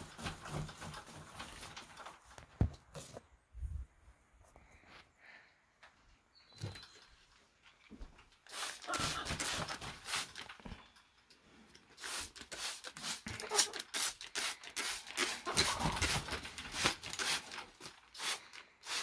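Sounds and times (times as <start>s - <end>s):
spray bottle squirts: 8.5s - 10.5s, 12.0s - 19.0s.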